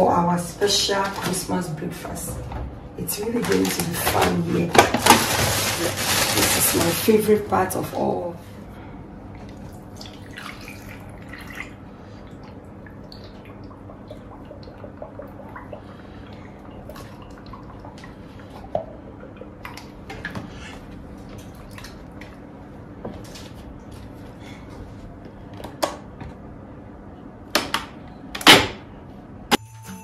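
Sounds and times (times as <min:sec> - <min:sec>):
milk pouring into jug: 0:09.6 - 0:11.8.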